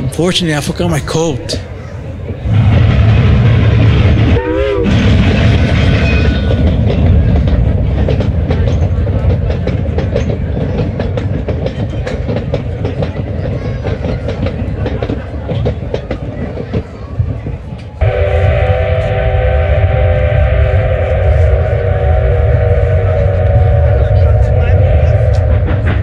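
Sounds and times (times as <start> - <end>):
train rumbling on rails: 0.0 - 26.0
train wheel clicks: 5.2 - 18.0.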